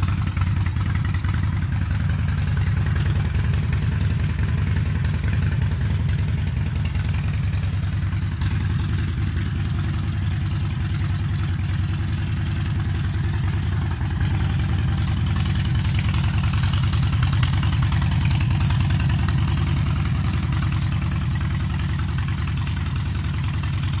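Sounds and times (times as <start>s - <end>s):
motorcycle engine idling: 0.0s - 24.0s.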